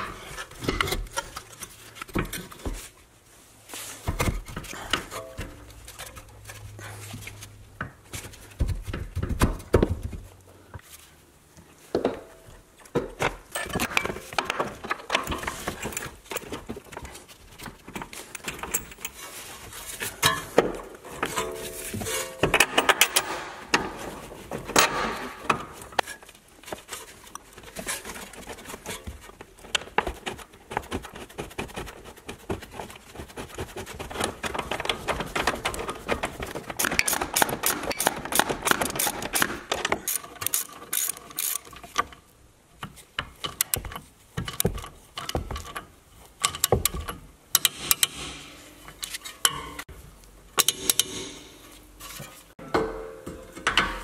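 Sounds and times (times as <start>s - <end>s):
ratchet wrench clicking: 40.1s - 41.7s.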